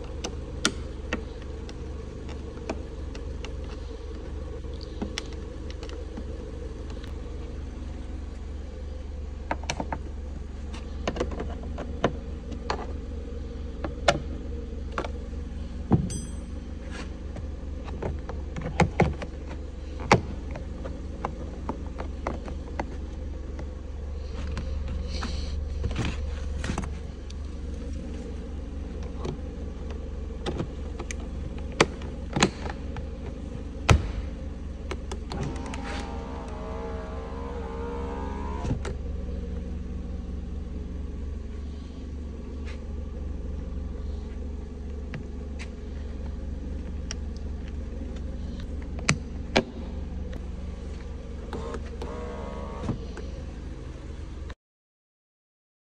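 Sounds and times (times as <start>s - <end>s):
low hum: 19.2s - 54.4s.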